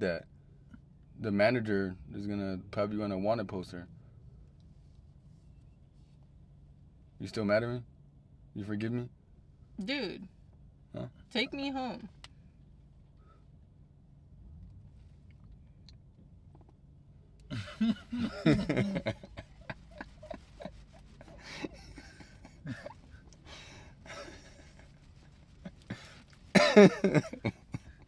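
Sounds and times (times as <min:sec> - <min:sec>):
low steady hum: 0:00.0 - 0:28.0
man snorting laughter: 0:17.5 - 0:24.9, 0:25.6 - 0:28.0.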